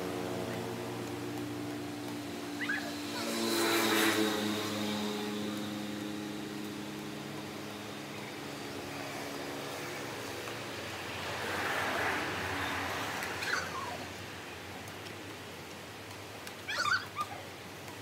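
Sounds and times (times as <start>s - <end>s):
passing vehicle engines humming: 0.0s - 14.7s.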